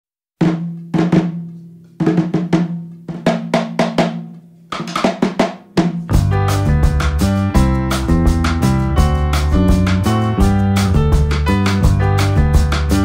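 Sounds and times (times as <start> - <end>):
band with bass line: 6.1 - 13.0.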